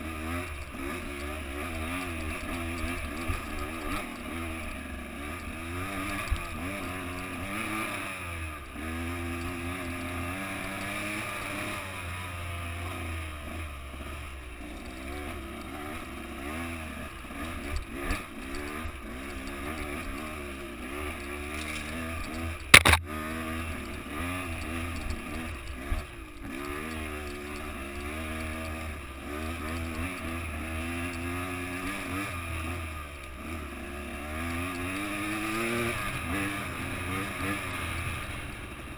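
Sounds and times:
dirt bike engine revving: 0.0 - 38.9
sharp knock: 22.7 - 23.0.

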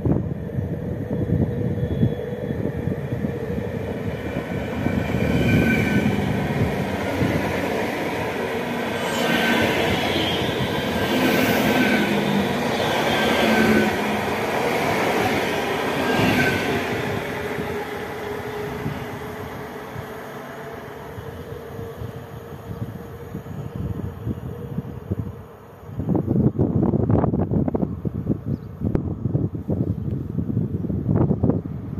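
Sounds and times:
train wheels rumbling on rails: 0.0 - 25.3.

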